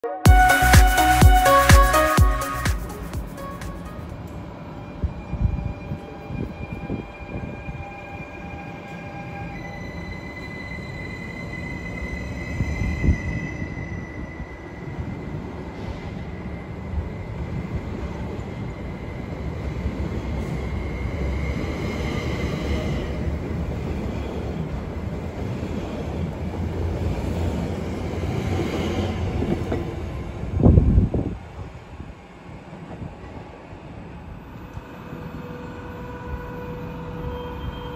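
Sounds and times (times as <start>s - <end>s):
train wheels rumbling on rail: 12.0s - 37.9s.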